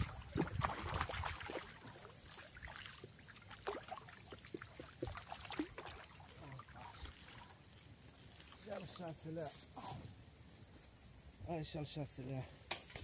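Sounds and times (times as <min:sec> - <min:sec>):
fish splashing in net: 0:00.0 - 0:07.5
water dripping: 0:00.0 - 0:07.6.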